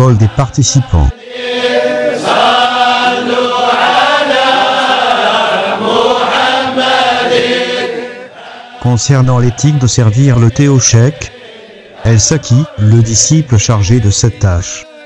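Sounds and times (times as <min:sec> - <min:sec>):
men chanting devotional song: 0:00.0 - 0:15.0.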